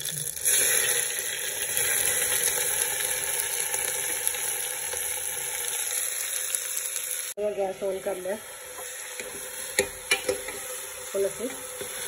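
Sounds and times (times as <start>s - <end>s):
onions sizzling in hot oil: 0.0s - 12.0s.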